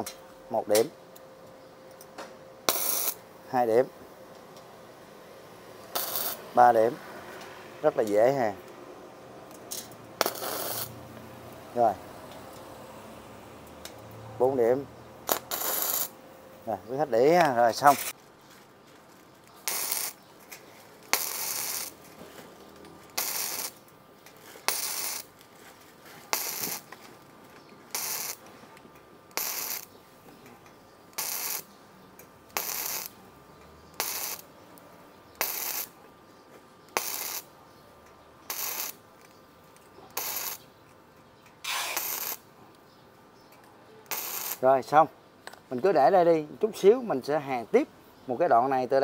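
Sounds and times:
welder arc bursts: 2.6 - 3.3, 5.8 - 7.0, 10.2 - 11.1, 13.8 - 16.2, 19.6 - 20.2, 21.0 - 22.1, 23.1 - 23.8, 24.6 - 25.3, 26.3 - 26.9, 27.9 - 28.4, 29.3 - 29.9, 31.1 - 31.7, 32.5 - 33.2, 34.0 - 34.5, 35.4 - 36.0, 36.9 - 37.5, 38.5 - 39.0, 40.2 - 40.7, 41.6 - 42.5, 44.1 - 44.7.

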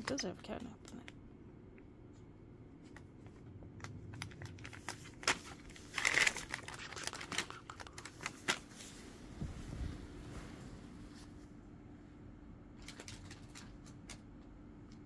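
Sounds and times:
paper bag crinkling: 3.9 - 9.0.

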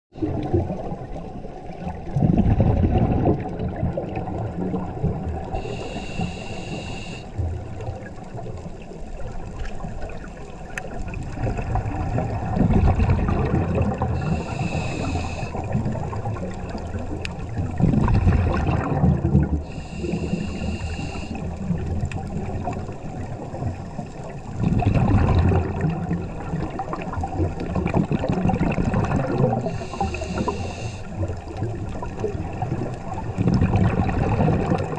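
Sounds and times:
exhaled bubbles rumbling: 0.1 - 34.9
regulator hissing inhale: 5.5 - 7.4, 14.2 - 15.8, 19.6 - 21.6, 29.6 - 31.2.

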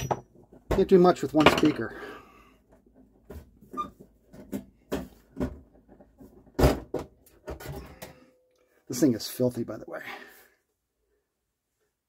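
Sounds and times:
cover knocks and clunks: 0.0 - 1.8, 3.2 - 8.2.

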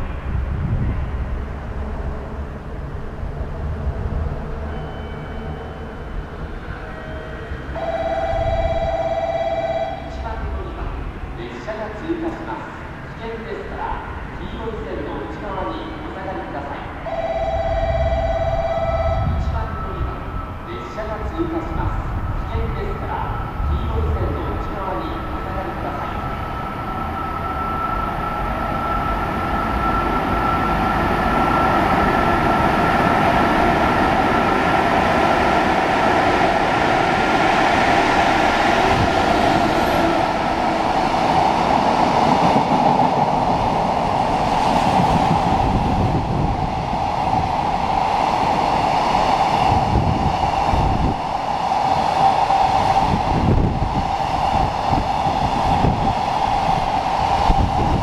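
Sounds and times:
sustained ringing tone: 4.6 - 10.1.

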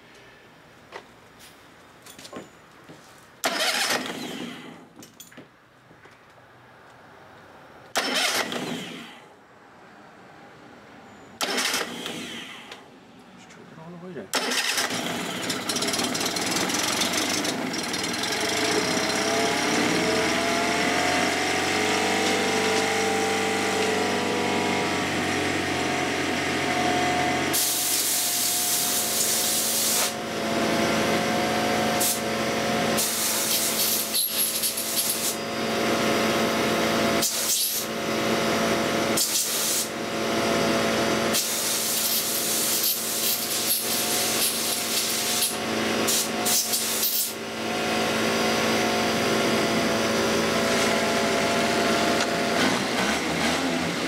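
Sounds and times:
outboard motor running: 14.8 - 27.5
loud hissing air bursts: 27.5 - 30.2, 32.0 - 32.3, 33.0 - 35.4, 37.2 - 37.9, 39.2 - 40.0, 41.3 - 47.4.

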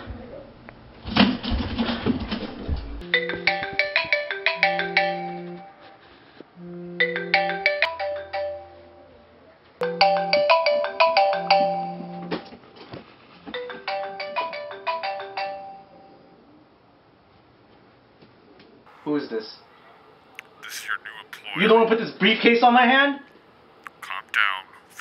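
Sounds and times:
phone ringtone melody: 3.0 - 5.7, 9.8 - 12.1
low phone buzz: 6.6 - 7.2.

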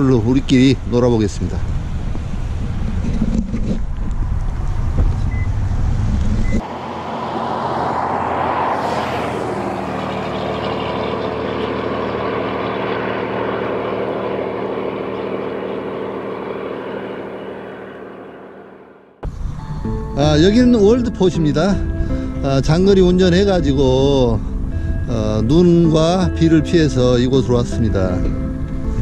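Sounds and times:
vehicle hum with road noise: 0.0 - 29.0
wind rumbling on microphone: 0.4 - 6.6.

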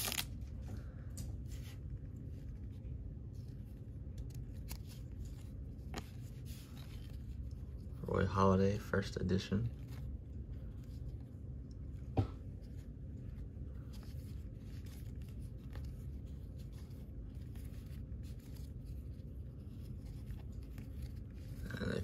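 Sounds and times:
cards scraping: 0.0 - 0.4, 3.4 - 8.0.

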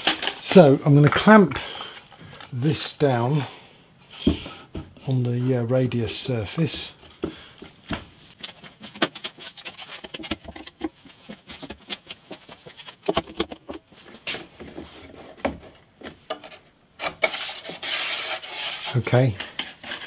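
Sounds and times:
scraping rub: 16.5 - 20.0.

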